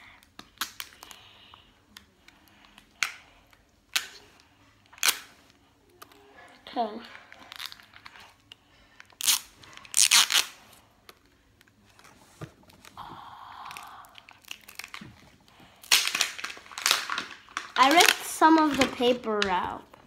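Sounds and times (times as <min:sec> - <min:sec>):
wrapping torn and crinkled: 0:07.2 - 0:10.7, 0:13.7 - 0:19.6.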